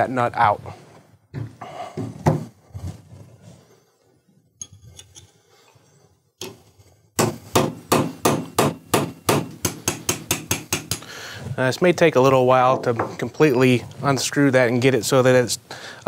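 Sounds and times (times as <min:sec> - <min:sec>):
hammer striking metal bar: 0:07.2 - 0:11.0.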